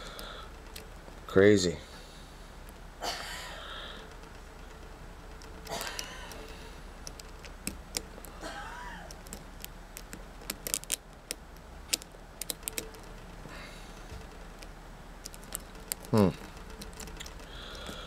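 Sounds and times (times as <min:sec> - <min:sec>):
lock pick clicking: 0:05.2 - 0:08.4, 0:09.1 - 0:13.2, 0:14.2 - 0:18.0.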